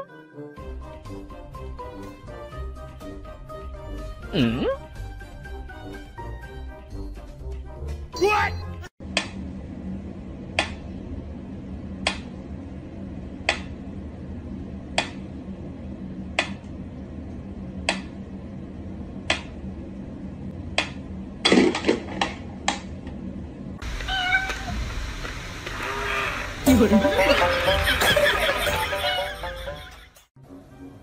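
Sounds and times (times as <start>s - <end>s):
steady low hum: 9.0s - 30.0s.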